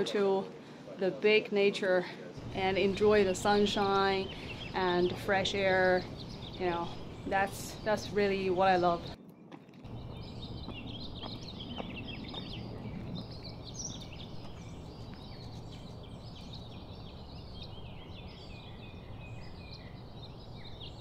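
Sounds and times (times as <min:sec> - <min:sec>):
steady low hum: 0:02.3 - 0:09.2
birds chirping and trilling: 0:02.3 - 0:21.0.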